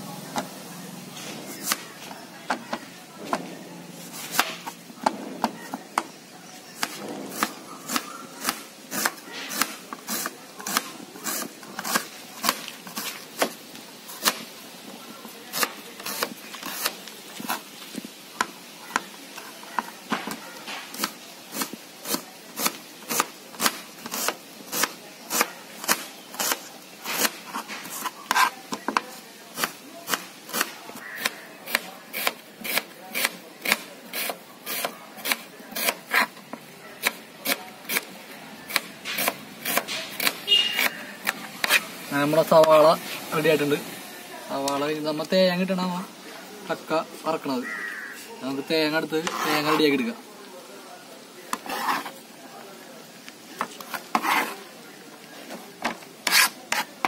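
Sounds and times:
knife chopping on cutting board: 38.7s - 41.8s.

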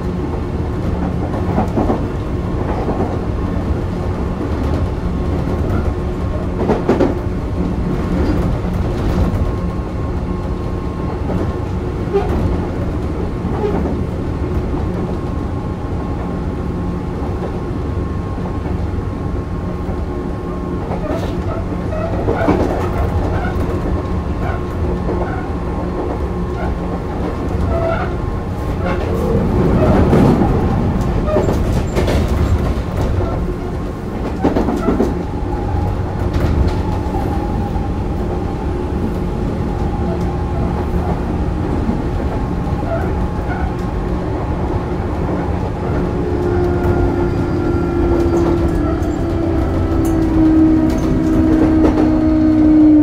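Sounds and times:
electric train rumble with tones: 0.0s - 53.0s
wheels clicking over rail joints: 20.9s - 37.7s.

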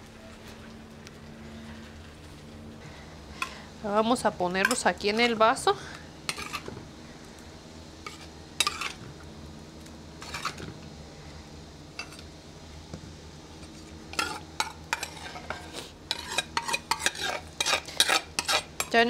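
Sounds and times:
spoon scraping clay bowl: 6.3s - 6.7s, 8.0s - 9.0s, 10.2s - 10.7s, 13.7s - 19.0s.

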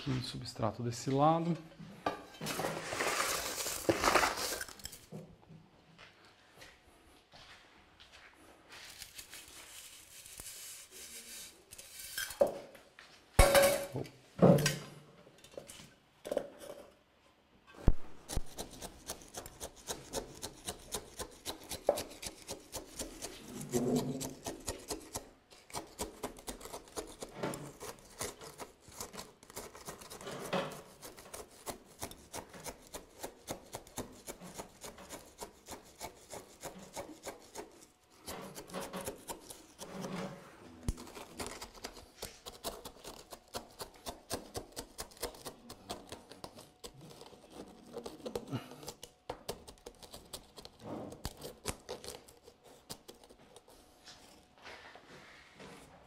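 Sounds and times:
gritty soil scraping: 2.4s - 5.0s.

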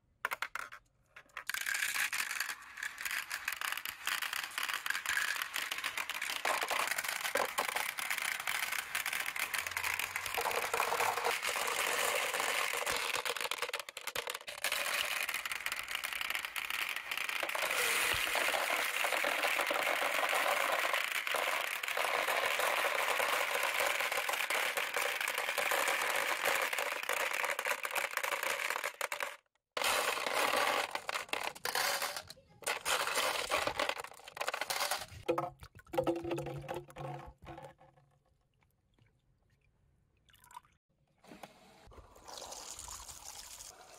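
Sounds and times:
marbles clicking against plastic: 0.2s - 38.0s.

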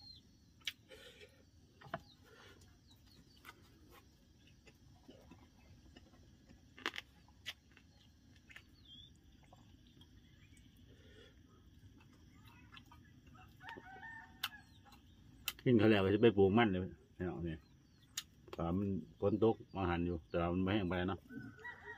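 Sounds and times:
bird chirps: 0.0s - 0.6s, 7.9s - 11.6s.

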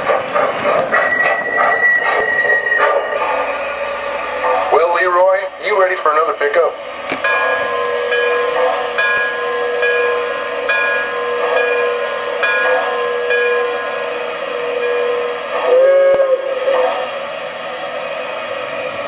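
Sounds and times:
locomotive bell ringing: 0.0s - 19.0s
steady steam hiss: 0.0s - 19.0s
steam whistle blast: 11.2s - 18.8s.

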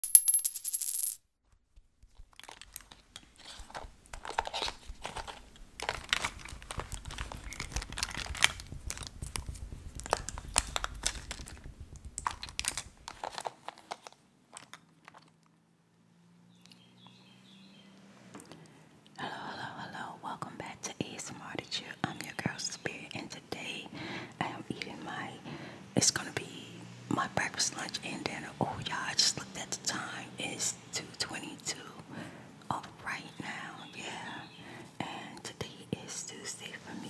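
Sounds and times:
crinkling and crackling: 1.4s - 15.6s
low rumble: 5.0s - 13.5s.

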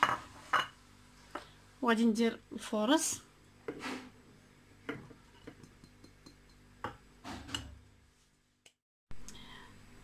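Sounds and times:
dish tapping against bowl: 4.8s - 7.7s.

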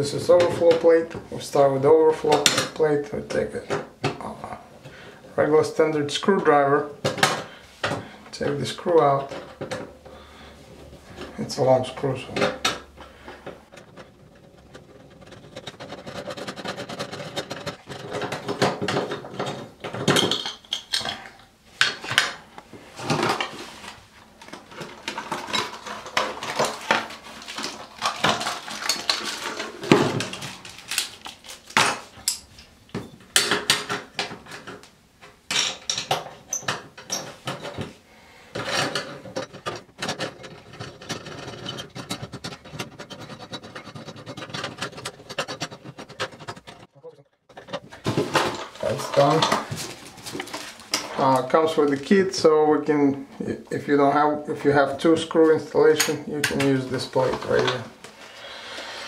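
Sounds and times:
plastic packaging rustling: 22.0s - 32.3s, 47.5s - 52.4s
metal parts clinking: 24.4s - 32.8s.

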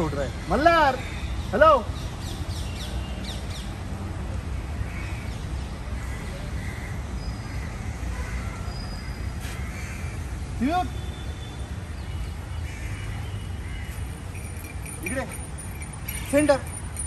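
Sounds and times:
low rumble of city traffic: 0.0s - 17.0s
crows cawing: 6.0s - 10.2s, 12.6s - 14.7s.

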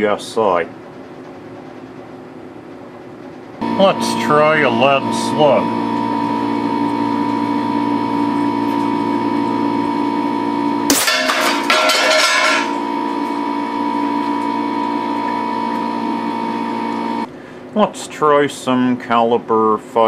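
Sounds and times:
steady multi-tone hum: 0.0s - 20.0s
clatter and ringing: 10.9s - 12.8s.

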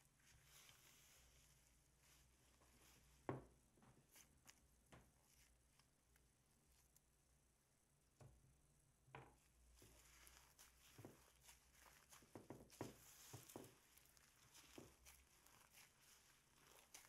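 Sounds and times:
slime squishing: 4.0s - 7.0s, 9.5s - 17.0s
foam beads popping: 9.8s - 17.0s.

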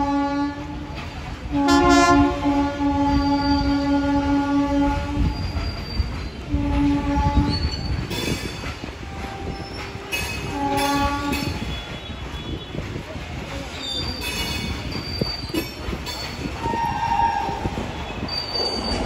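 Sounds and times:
locomotive horn blasts: 0.0s - 0.8s, 1.5s - 5.4s, 6.5s - 7.6s, 10.4s - 12.8s
low rumble of train: 0.0s - 19.0s.

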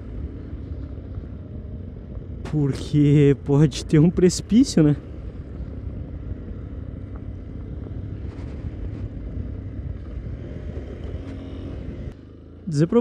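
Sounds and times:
motorcycle engine running: 0.0s - 13.0s
wind buffeting microphone: 5.0s - 12.2s.

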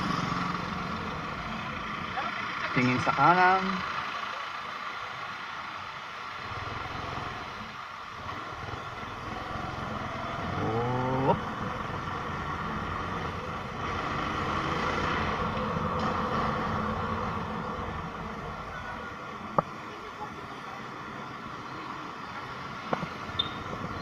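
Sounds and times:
engine revving: 0.0s - 3.9s, 6.4s - 19.0s
road and wind noise: 0.0s - 24.0s
motorcycle engine running: 8.2s - 16.2s.

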